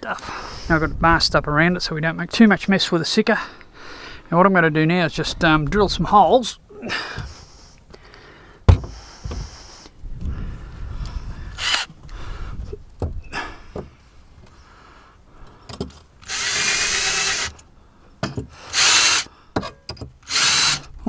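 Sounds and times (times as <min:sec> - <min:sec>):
cordless drill running: 0:11.6 - 0:11.9, 0:16.2 - 0:17.6, 0:18.7 - 0:19.3, 0:20.2 - 0:20.9.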